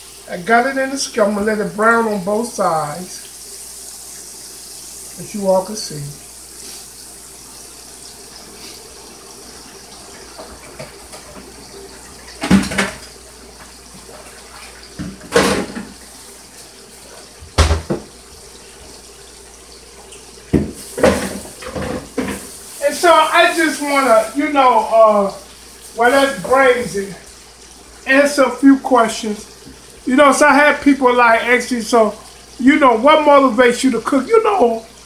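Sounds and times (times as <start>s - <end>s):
meat sizzling in oil: 2.0s - 27.1s.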